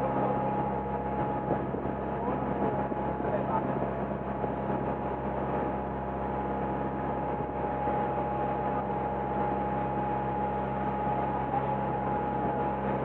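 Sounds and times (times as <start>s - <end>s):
boat engine droning: 0.0s - 13.0s
faint high whine: 4.8s - 13.0s.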